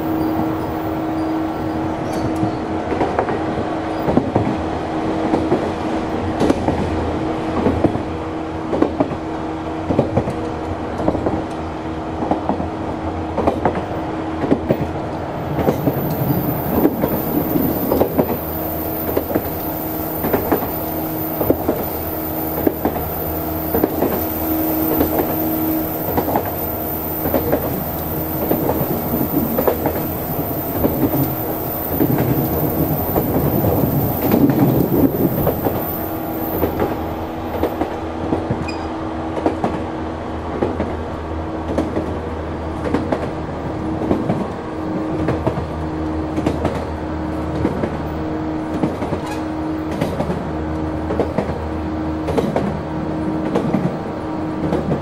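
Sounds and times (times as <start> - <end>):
wheels clattering on rails: 12.2 - 41.0, 46.3 - 55.0
electric train motor hum: 15.4 - 37.7
thin high whine: 15.6 - 37.6.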